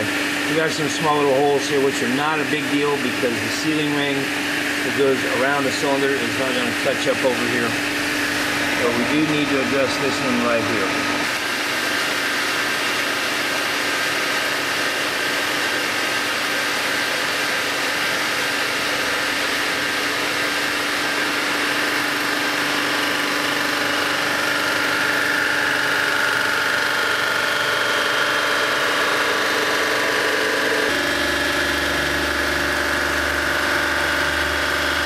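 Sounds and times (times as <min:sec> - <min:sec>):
resurfacing machine humming: 0:00.0 - 0:35.0.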